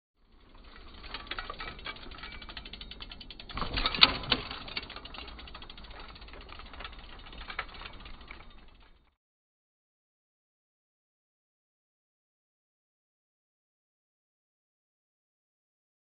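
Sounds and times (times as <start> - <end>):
bicycle freehub ratcheting clicks: 0.2 - 9.1.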